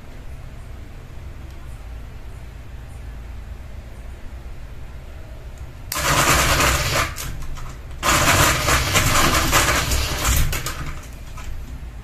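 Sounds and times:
fan motor hum: 0.0 - 12.0
ceiling fan rattling: 3.6 - 12.0.

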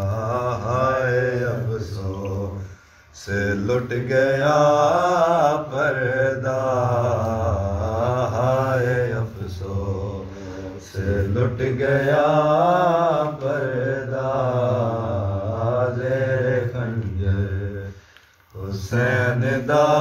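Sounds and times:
man chanting a lament: 0.0 - 18.0.

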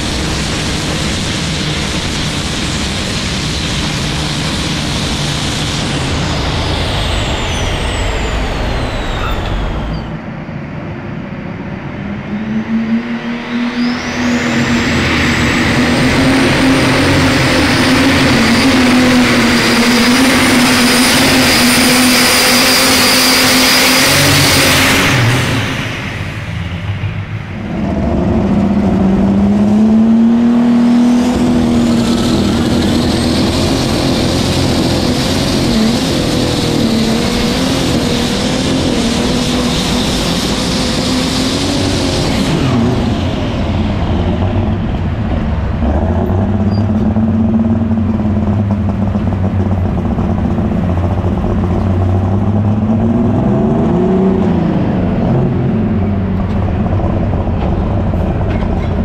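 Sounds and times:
tractor engine at full throttle: 0.0 - 59.0
turbo whistle: 5.8 - 10.3.

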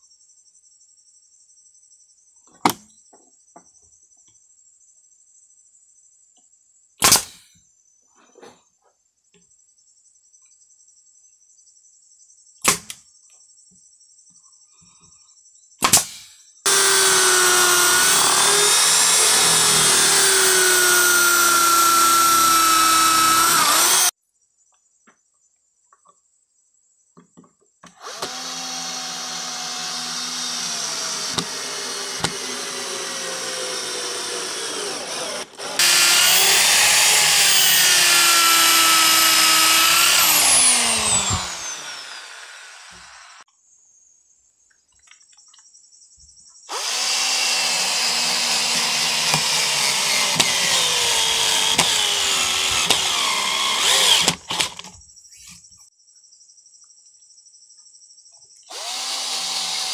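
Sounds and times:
pneumatic nail gun shots: 7.0 - 7.5, 12.6 - 13.0, 15.8 - 24.1, 30.2 - 43.4, 48.2 - 54.9
electric drill boring into wood: 15.8 - 24.1, 27.9 - 43.4, 46.7 - 54.9, 58.7 - 59.9.

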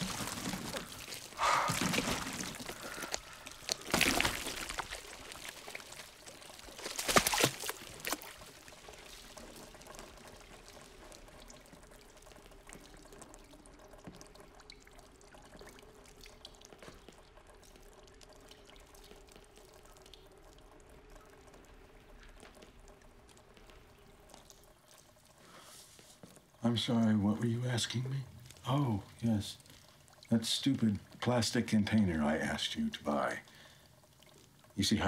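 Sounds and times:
thick sludge pouring and splattering: 0.0 - 12.3
liquid trickling and dripping: 0.0 - 35.0.

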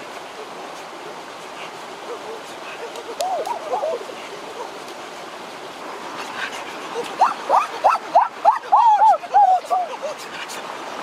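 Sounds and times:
stream running over rocks: 0.0 - 11.0
boys yelping: 7.0 - 10.2.

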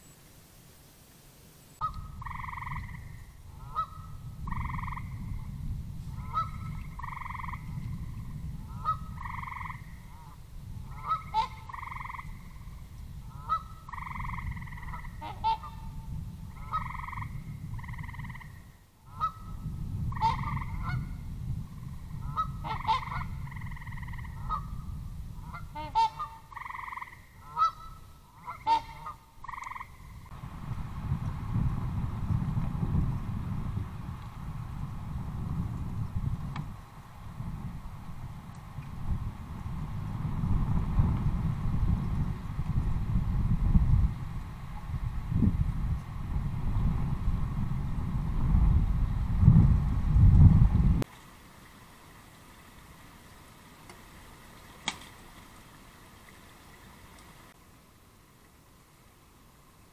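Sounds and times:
waterfowl honking: 1.8 - 5.2, 6.2 - 7.7, 8.7 - 12.4, 13.3 - 16.0, 16.6 - 21.2, 22.2 - 24.7, 25.4 - 30.3
steady low rumble: 29.9 - 51.0.

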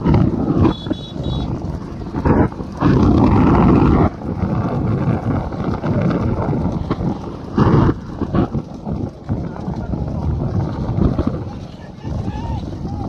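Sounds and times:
hooves on road: 0.0 - 13.0
motorbike engines: 0.0 - 13.0.

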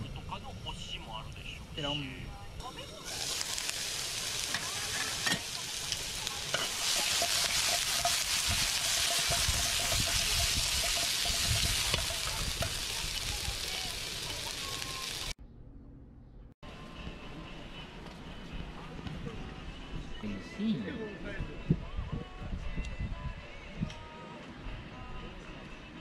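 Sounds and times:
chicken sizzling in a frying pan: 2.7 - 15.4.

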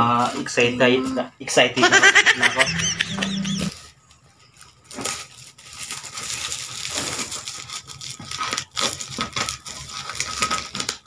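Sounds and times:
plastic wrapping crinkling: 3.7 - 11.0.

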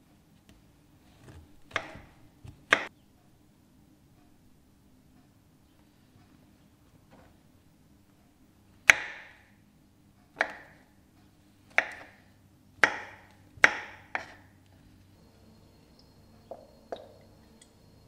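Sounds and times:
knife chopping on wooden board: 1.3 - 2.9, 10.4 - 10.8, 11.7 - 12.2, 12.8 - 14.5.

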